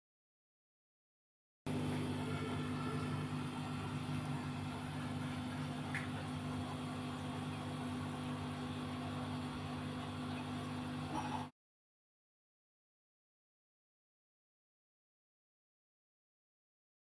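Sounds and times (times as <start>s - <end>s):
fan humming: 1.7s - 11.5s.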